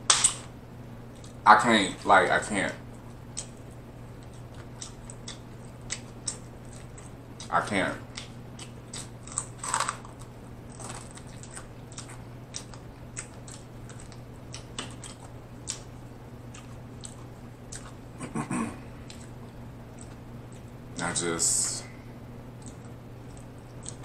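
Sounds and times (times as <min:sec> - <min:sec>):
steady low hum: 0:00.0 - 0:24.0
wet chewing: 0:03.0 - 0:07.5, 0:08.1 - 0:18.1, 0:19.0 - 0:20.8, 0:22.5 - 0:24.0
crunchy clicks: 0:08.1 - 0:18.0, 0:22.6 - 0:24.0
lip smacks: 0:22.6 - 0:24.0.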